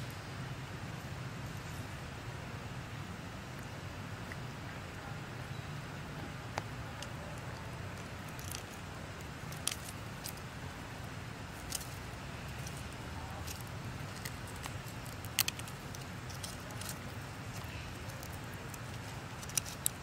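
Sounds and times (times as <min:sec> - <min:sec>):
steady low rumble: 0:00.0 - 0:20.0
small clicks and crackles of peeling: 0:06.5 - 0:20.0.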